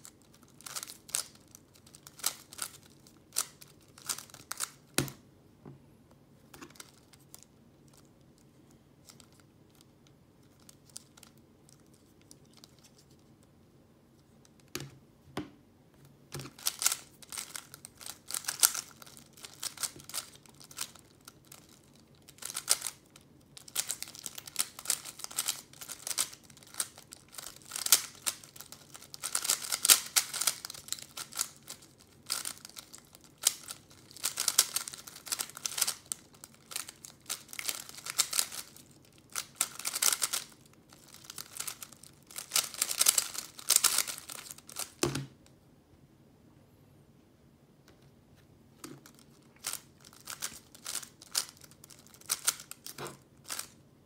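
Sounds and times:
puzzle cube clicking: 0:16.5 - 0:21.0, 0:22.4 - 0:23.0, 0:23.7 - 0:38.8, 0:39.4 - 0:45.0.

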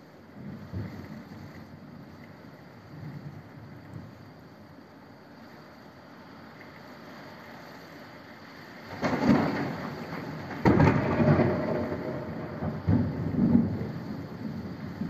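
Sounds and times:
rain falling: 0:00.0 - 0:15.0
crackling thunderclap: 0:08.9 - 0:15.0
thunder rumbling: 0:08.9 - 0:15.0.

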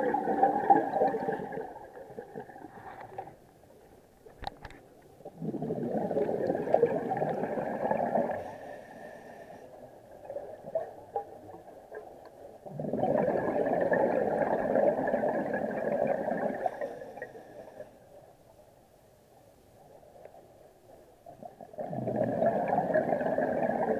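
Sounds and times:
underwater regulator exhalation bubbles: 0:05.2 - 0:08.4, 0:12.6 - 0:16.8, 0:21.8 - 0:23.9.

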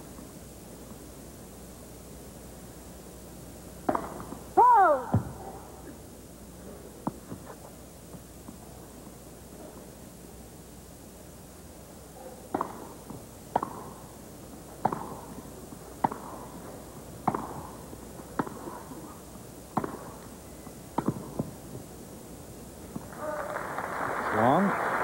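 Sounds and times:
tennis rackets striking ball: 0:03.8 - 0:04.4, 0:12.5 - 0:14.1, 0:14.8 - 0:15.4, 0:16.0 - 0:20.3, 0:20.9 - 0:21.8.

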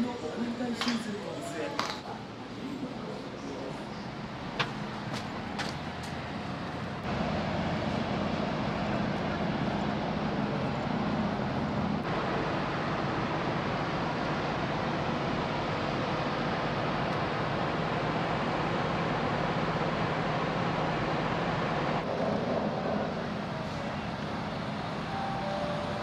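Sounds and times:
ship machinery droning: 0:22.2 - 0:26.0.

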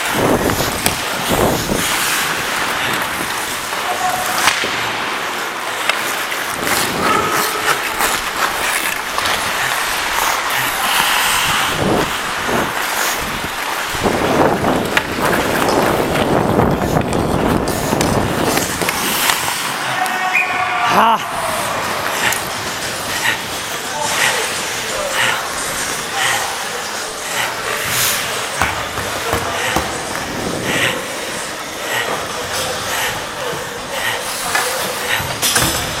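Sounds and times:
wind on microphone: 0:00.0 - 0:03.3, 0:11.3 - 0:18.8
sharp clacks of sticks and puck: 0:00.0 - 0:20.4, 0:22.0 - 0:36.0
skates scraping on ice: 0:00.0 - 0:36.0.

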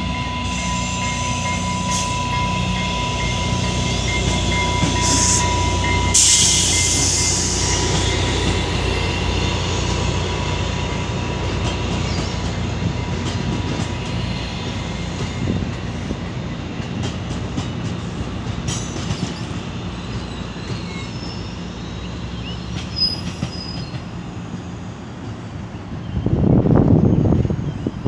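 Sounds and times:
high wheel squeals: 0:00.0 - 0:09.2, 0:18.8 - 0:24.8
train wheels rumbling on rail: 0:00.0 - 0:28.0.

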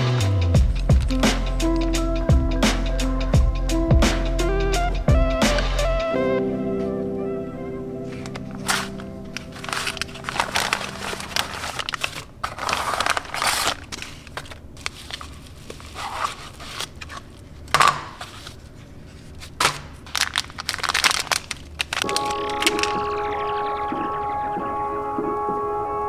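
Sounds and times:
packaging being torn and crinkled: 0:08.1 - 0:17.4, 0:19.2 - 0:23.1.

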